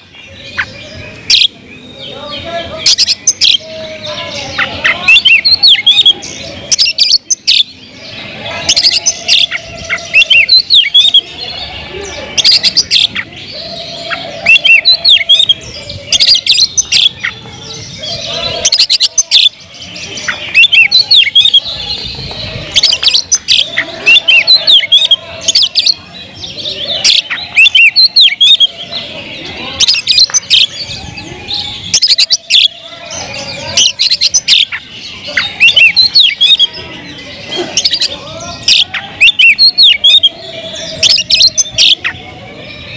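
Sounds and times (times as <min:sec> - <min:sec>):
bird singing whistles and chirps: 0:08.7 - 0:11.5, 0:12.4 - 0:29.1, 0:29.8 - 0:37.2, 0:37.8 - 0:42.2.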